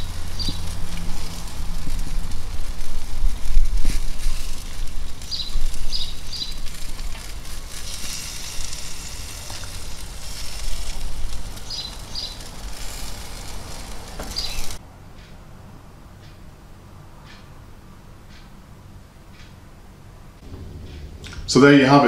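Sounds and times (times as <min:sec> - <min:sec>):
bird chirping: 0:00.0 - 0:00.8, 0:05.3 - 0:06.7, 0:11.6 - 0:13.5, 0:14.2 - 0:15.3
low rumble: 0:00.0 - 0:14.8, 0:20.4 - 0:22.0
ribs sizzling on a grill: 0:00.0 - 0:14.8.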